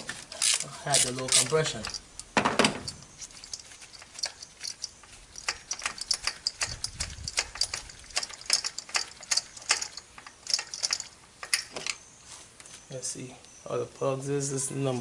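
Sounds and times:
ratchet wrench clicking: 0.3s - 11.7s.

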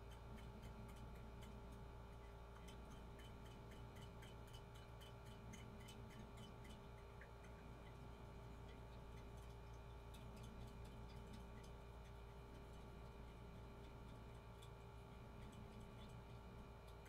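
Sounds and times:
faint ticking: 0.0s - 17.0s
low steady hum: 0.0s - 17.0s.

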